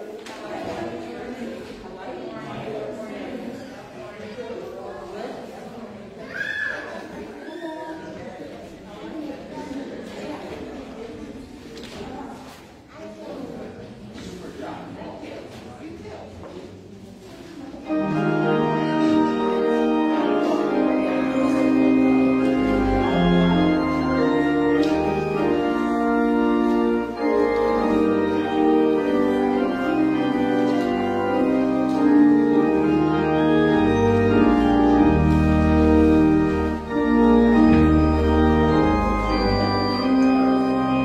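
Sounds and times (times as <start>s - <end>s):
church organ playing chords: 17.8s - 41.0s.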